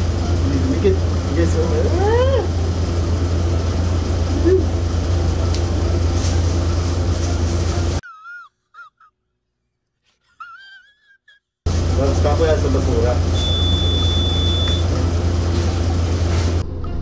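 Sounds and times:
loud low machine hum: 0.0s - 8.0s, 11.7s - 17.0s.

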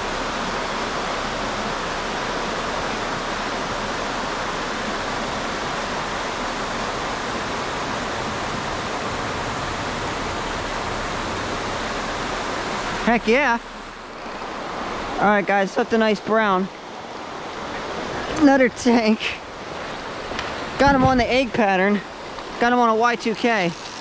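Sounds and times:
water rushing over spillway: 0.0s - 24.0s.

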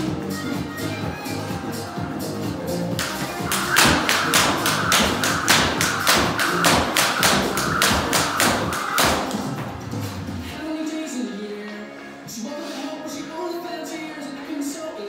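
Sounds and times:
background music: 0.0s - 15.0s
jump rope slapping floor: 3.0s - 9.8s.

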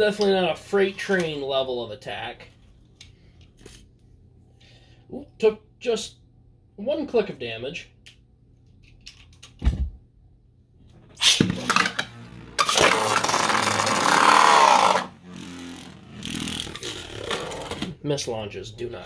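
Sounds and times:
spinning tops whirring and clashing: 11.2s - 15.1s.

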